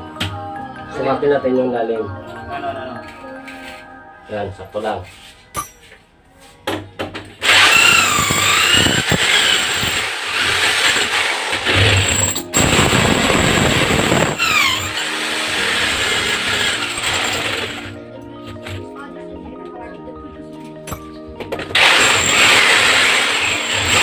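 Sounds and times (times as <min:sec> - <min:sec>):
electric drill boring into tile: 0:07.4 - 0:18.0, 0:21.7 - 0:24.0.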